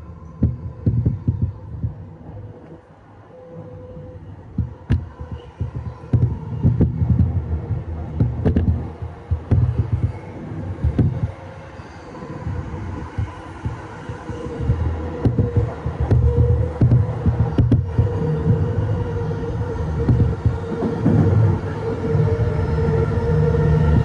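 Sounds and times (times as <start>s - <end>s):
traction equipment hum: 0.0s - 24.0s
train wheel rumble on rails: 0.0s - 24.0s
wheels clacking over rail joints: 13.1s - 18.7s.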